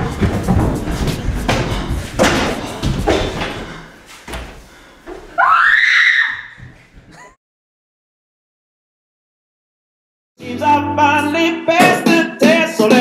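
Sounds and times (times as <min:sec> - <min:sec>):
loud high cry: 0:05.4 - 0:06.6.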